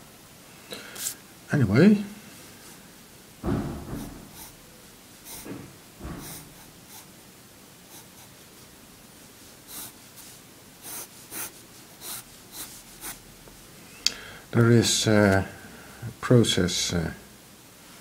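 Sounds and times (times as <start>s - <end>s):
pencil sketching on paper: 3.9s - 4.6s, 5.2s - 5.6s, 6.2s - 7.1s, 7.9s - 8.3s, 9.7s - 13.2s.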